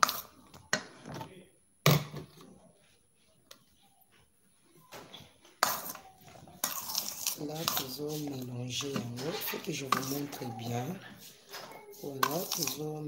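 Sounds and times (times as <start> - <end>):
utensils scraping a steel bowl: 6.6 - 12.9.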